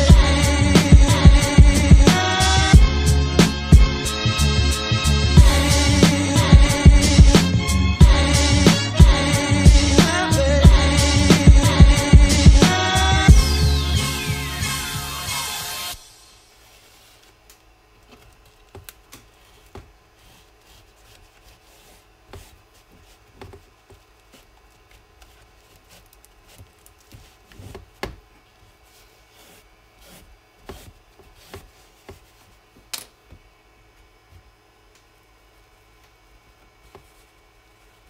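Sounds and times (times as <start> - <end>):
soft rubbing of foam: 16.3 - 17.5, 19.2 - 32.8, 36.7 - 38.0.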